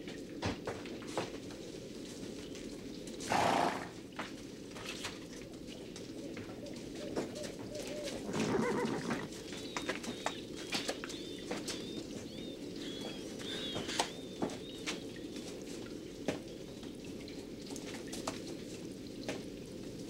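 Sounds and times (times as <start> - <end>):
hooves clopping on dirt: 0.0 - 20.0
horse whinnying: 3.3 - 3.9, 8.0 - 9.3
horse snorting: 3.3 - 4.0, 8.1 - 9.4.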